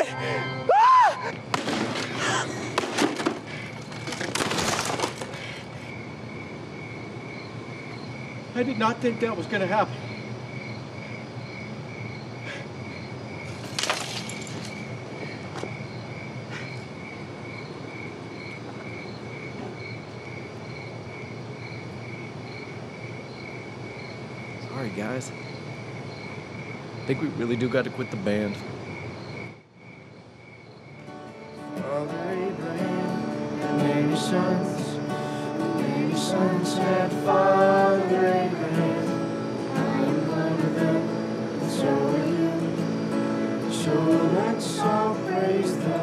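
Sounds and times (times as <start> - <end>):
cricket chirping: 0.0 - 46.0
guitar smashing on pavement: 1.5 - 5.4, 13.5 - 14.9.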